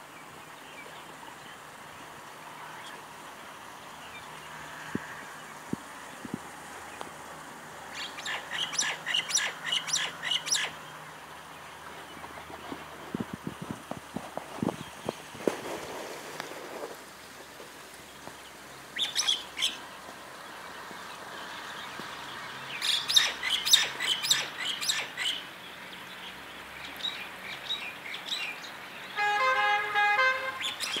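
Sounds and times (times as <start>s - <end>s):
small birds chirping: 0.1s - 15.5s, 17.8s - 29.3s, 30.5s - 31.0s
vehicle horn honking: 29.2s - 31.0s.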